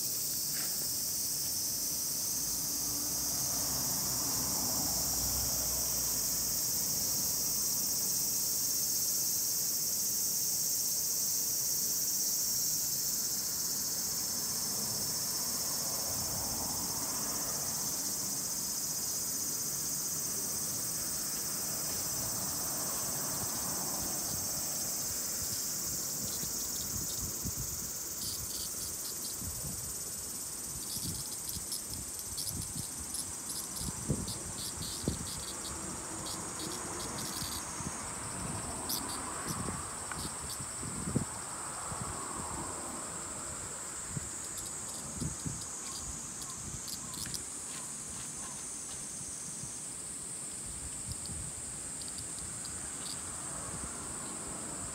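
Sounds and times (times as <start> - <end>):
fast pulsing insect chirp: 0.0 - 54.9
insects singing: 0.0 - 54.9.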